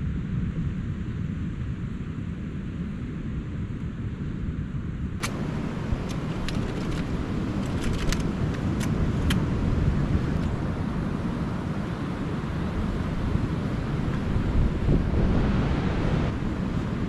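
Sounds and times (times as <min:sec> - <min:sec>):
wind rushing: 0:05.2 - 0:17.0.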